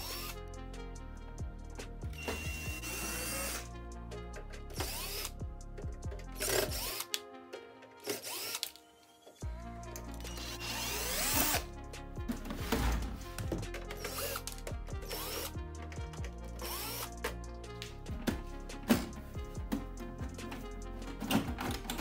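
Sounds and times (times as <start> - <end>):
cordless drill running: 0.0 - 0.3, 2.2 - 3.6, 4.8 - 5.3, 6.4 - 7.0, 8.0 - 8.7, 10.3 - 11.6, 14.0 - 15.5, 16.6 - 17.1
background music: 0.0 - 22.0.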